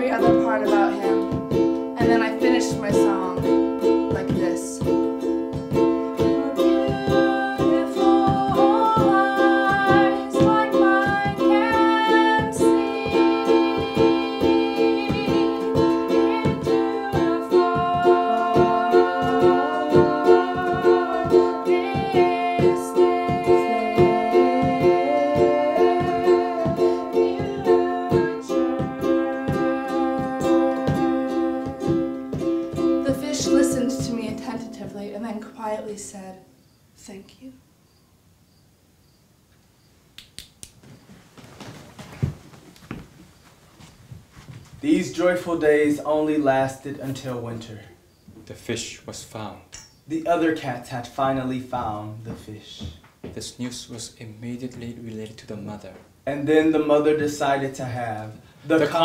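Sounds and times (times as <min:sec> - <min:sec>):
ukulele strumming: 0:00.0 - 0:36.2, 0:56.6 - 0:59.0
person singing: 0:06.2 - 0:35.2, 0:57.8 - 0:59.0.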